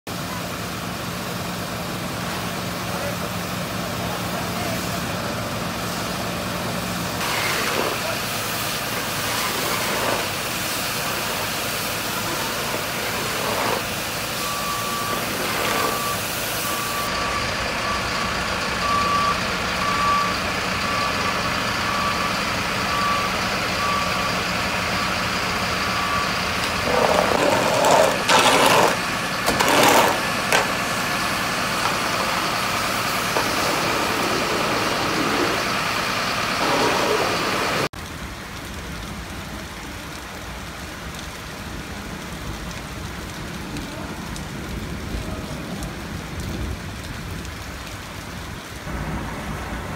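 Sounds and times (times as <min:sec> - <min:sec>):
fire engine running: 0:00.1 - 0:49.9
rain: 0:00.1 - 0:49.9
reversing alarm beeping: 0:12.2 - 0:37.9.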